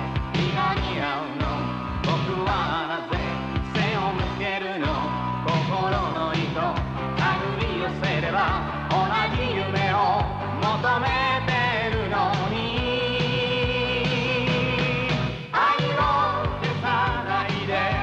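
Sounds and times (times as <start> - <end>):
pop song with sung vocals: 0.0 - 18.0.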